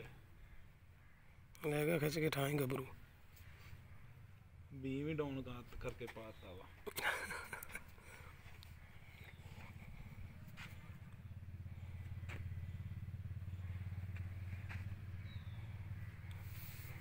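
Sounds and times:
vehicle engine running: 0:07.4 - 0:17.0.

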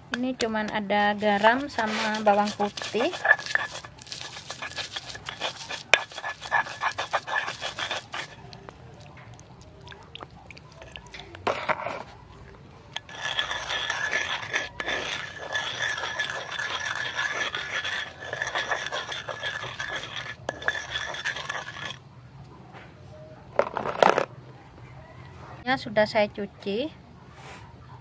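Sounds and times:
pestle scraping in stone mortar: 0:00.1 - 0:09.0, 0:09.8 - 0:12.2, 0:13.0 - 0:22.0, 0:23.6 - 0:24.3.

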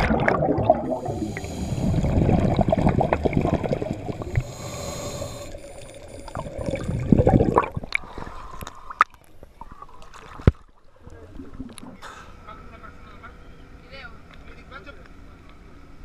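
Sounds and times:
water gurgling around camera: 0:00.0 - 0:12.1.

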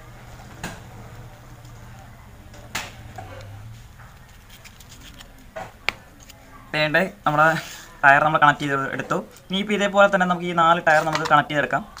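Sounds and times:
hands handling plastic pipe: 0:04.1 - 0:06.4.

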